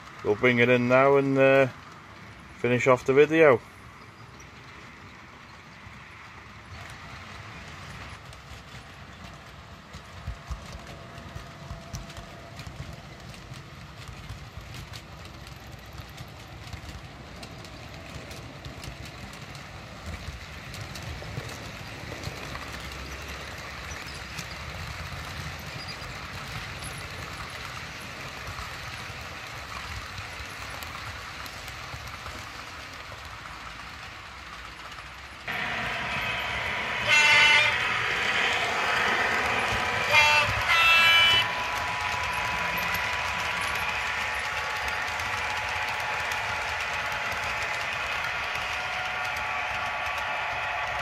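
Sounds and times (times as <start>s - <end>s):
model train wheels rumbling: 0.0s - 51.0s
clicks over rail joints: 6.7s - 35.4s
high rushing noise: 35.5s - 51.0s.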